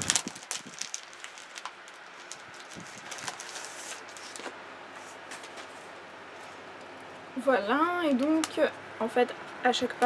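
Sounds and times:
pop-up book rustling and crinkling: 0.0 - 4.6.

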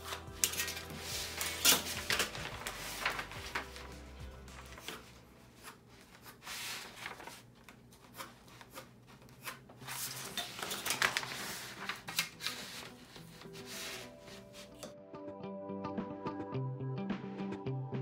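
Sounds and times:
rulers and paper sliding: 0.0 - 4.0, 4.6 - 14.9
faint background music: 0.0 - 7.4, 9.4 - 18.0.

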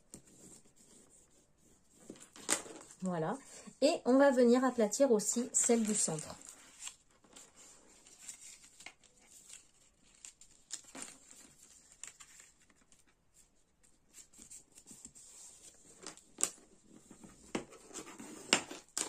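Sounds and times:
card paper being folded: 5.3 - 13.1
paper rustling: 5.3 - 19.0.

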